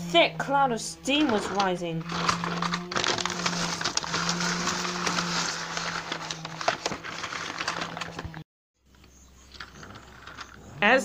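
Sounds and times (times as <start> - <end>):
paper rustling and crinkling: 1.2 - 8.4.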